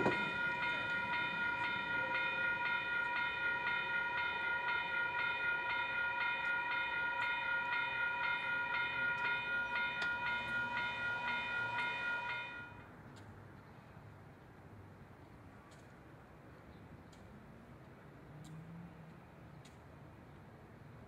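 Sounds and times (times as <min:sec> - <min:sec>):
crossing warning bell ringing: 0:00.0 - 0:12.9.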